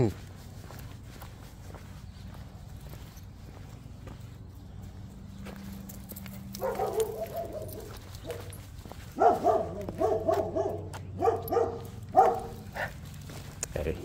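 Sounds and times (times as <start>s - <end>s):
dog barking: 6.5s - 13.0s.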